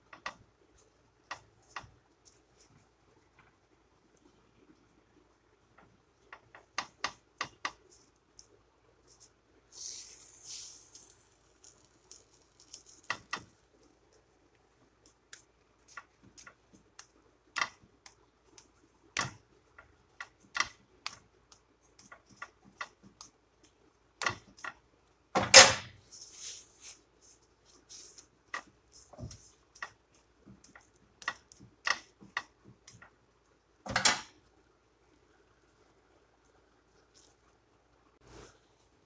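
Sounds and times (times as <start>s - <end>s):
spatula scraping hiss: 9.2s - 13.1s, 26.0s - 29.6s.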